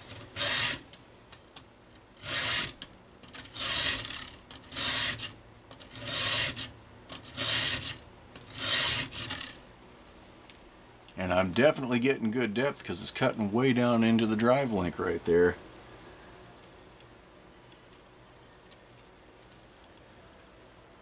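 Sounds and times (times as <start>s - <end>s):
file rasping on chainsaw chain: 0.2s - 0.8s, 2.2s - 2.8s, 3.4s - 6.7s, 7.3s - 9.6s.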